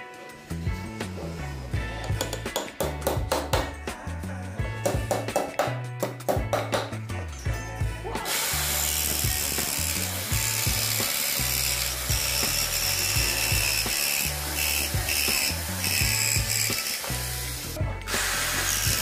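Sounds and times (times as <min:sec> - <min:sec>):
background music with bass: 0:00.0 - 0:19.0
electric jigsaw cutting wood: 0:08.3 - 0:19.0.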